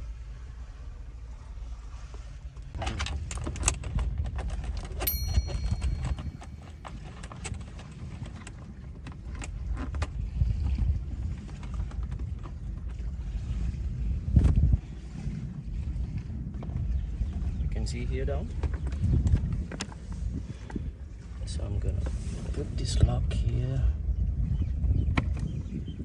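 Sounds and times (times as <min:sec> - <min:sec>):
brief high ping: 0:05.1 - 0:06.6.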